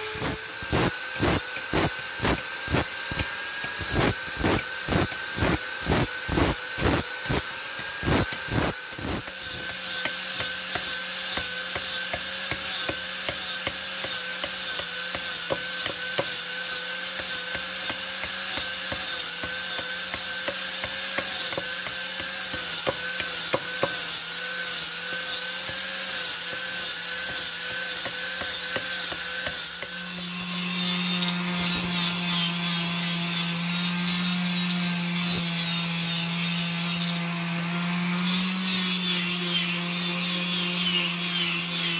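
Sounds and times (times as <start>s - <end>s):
palm sander humming: 0.0s - 35.2s
power tool whine: 0.0s - 41.9s.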